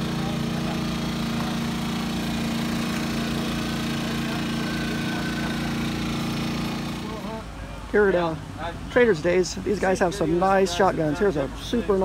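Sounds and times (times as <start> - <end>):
small engine idling: 0.0 - 7.4.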